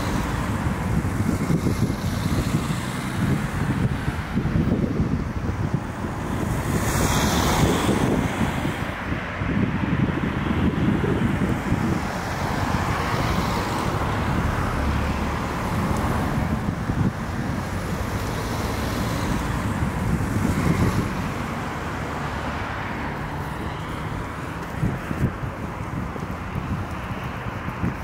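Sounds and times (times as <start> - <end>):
cars driving past: 0.0 - 28.0.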